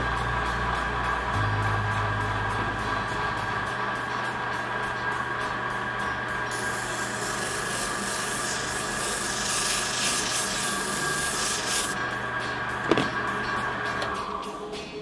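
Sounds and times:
disc sander motor hum: 0:00.0 - 0:12.0
rubber scrubbing on sanding disc: 0:06.6 - 0:12.0.

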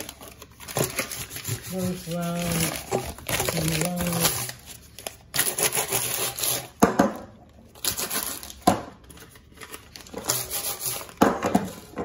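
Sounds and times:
metal tin rustling and scraping: 0:00.0 - 0:04.7.

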